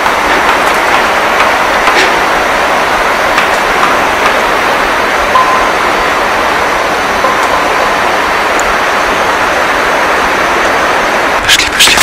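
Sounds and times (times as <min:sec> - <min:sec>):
loud steady hiss: 0:00.0 - 0:12.0
brief steady tone: 0:05.2 - 0:08.3.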